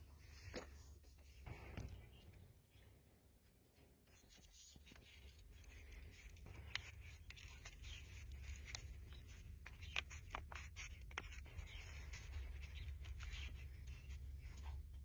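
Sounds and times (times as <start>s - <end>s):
plastic pot crackling: 5.0s - 14.8s.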